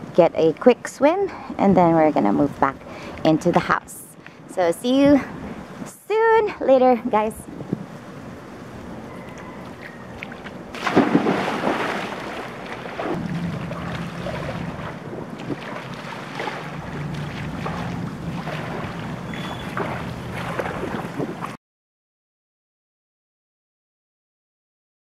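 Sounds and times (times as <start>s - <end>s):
water splashing from swimming: 9.7s - 21.6s
person jumping into pool splash: 10.7s - 21.5s.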